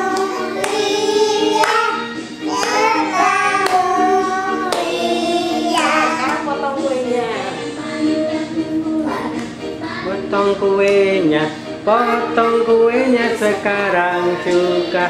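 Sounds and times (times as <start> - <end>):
children and woman singing: 0.0 - 10.8, 11.8 - 15.0
hand clapping: 0.1 - 3.9, 4.6 - 5.1, 5.7 - 6.5.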